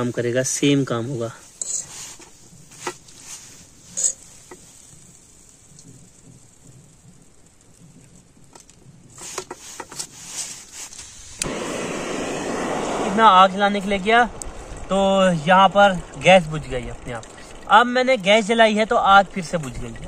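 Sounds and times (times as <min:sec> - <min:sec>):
pan hissing on gas stove: 0:01.4 - 0:07.0, 0:09.1 - 0:16.2
light clicks and rustles: 0:01.4 - 0:11.5.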